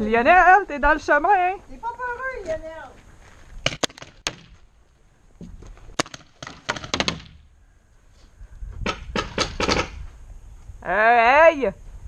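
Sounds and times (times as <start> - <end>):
paintball gun pops: 3.6 - 4.6, 5.9 - 7.4.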